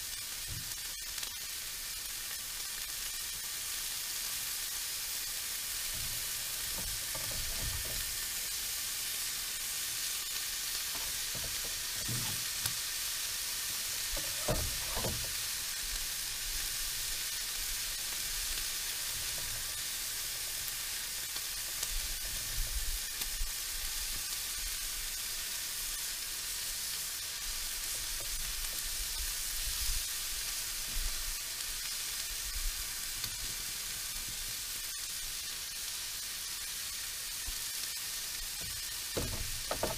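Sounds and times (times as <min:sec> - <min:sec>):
fish sizzling in a frying pan: 0:00.0 - 0:39.9
low stirring knocks: 0:39.2 - 0:39.9.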